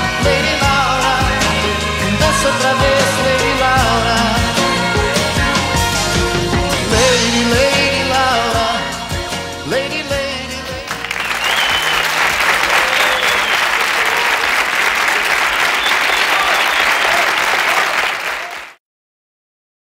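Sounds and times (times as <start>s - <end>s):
live band playing: 0.0s - 17.5s
audience applauding: 10.8s - 18.8s.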